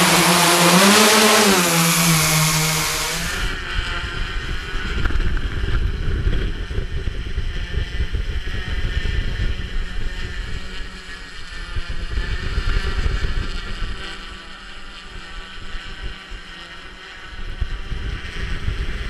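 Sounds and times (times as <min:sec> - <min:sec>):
drone propellers humming: 0:00.0 - 0:19.0
wind rumbling on microphone: 0:01.9 - 0:16.6, 0:17.2 - 0:19.0.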